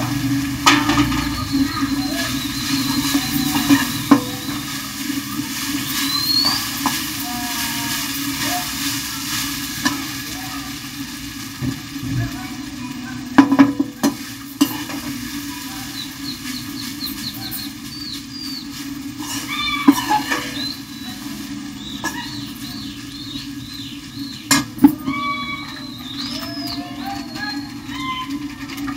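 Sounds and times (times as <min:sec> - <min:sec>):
steady sizzle in a pan: 0:00.0 - 0:28.9
metal spoon scraping rice: 0:18.5 - 0:20.7.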